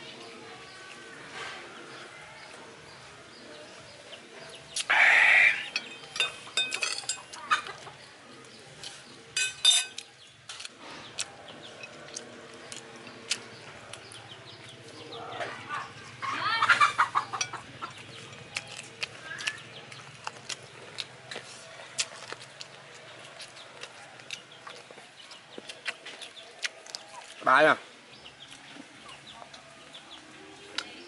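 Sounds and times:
chickens clucking: 1.5s - 9.3s, 10.6s - 31.0s.

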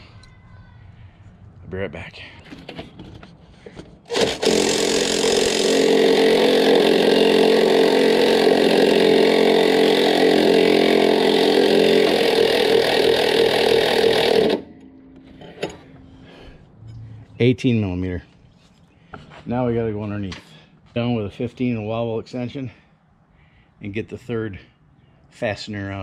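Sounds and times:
cordless power tool running: 4.1s - 14.9s.

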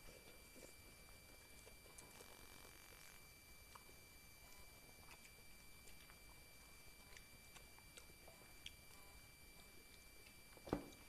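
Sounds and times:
quiet chewing: 0.0s - 11.0s.

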